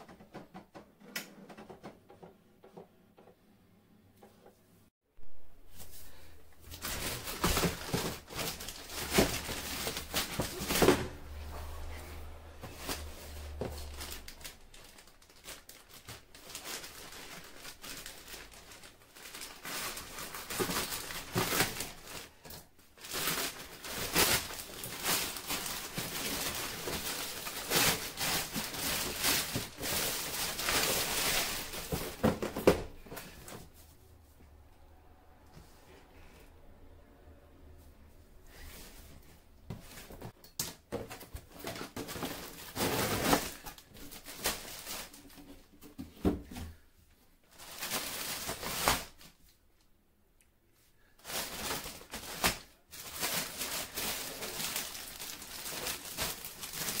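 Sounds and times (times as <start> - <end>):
plastic bag crinkling: 6.6 - 11.3, 12.6 - 32.7, 41.2 - 45.6, 47.5 - 49.4, 51.2 - 57.0.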